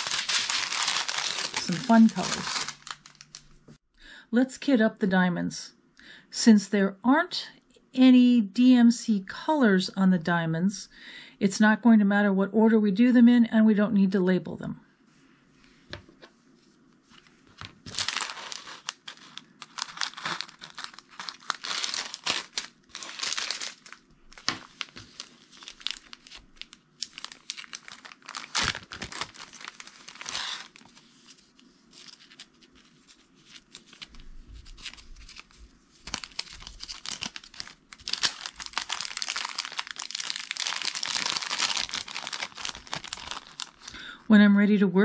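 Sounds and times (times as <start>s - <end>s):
plastic bags crinkling: 0.0s - 3.6s, 17.6s - 44.1s.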